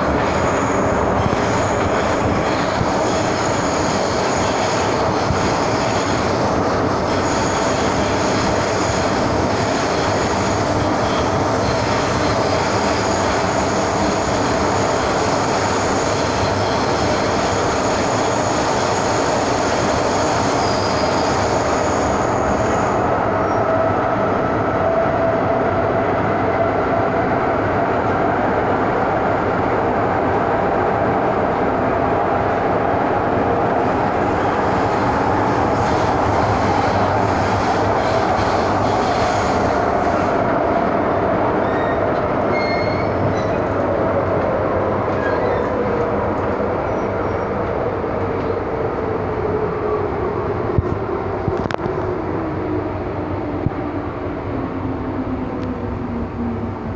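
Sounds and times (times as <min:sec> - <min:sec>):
rumble of wheels on rail: 0:00.0 - 0:56.9.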